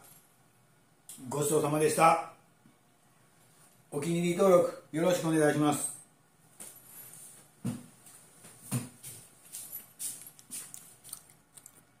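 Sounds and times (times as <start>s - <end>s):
clothes and chair rustling: 6.4s - 12.0s
light footstep taps and clicks: 7.4s - 11.7s
soft thumps: 7.6s - 9.2s.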